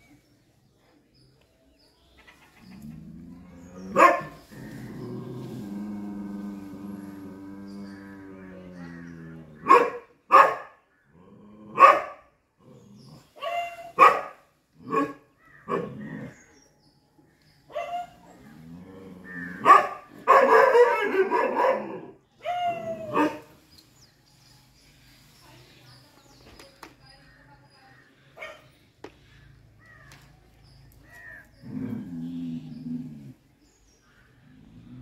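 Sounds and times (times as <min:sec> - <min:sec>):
dog barking: 0:03.9 - 0:04.4, 0:09.6 - 0:10.8, 0:11.8 - 0:12.3, 0:13.4 - 0:16.0, 0:17.7 - 0:18.2, 0:19.6 - 0:23.5, 0:28.4 - 0:28.7.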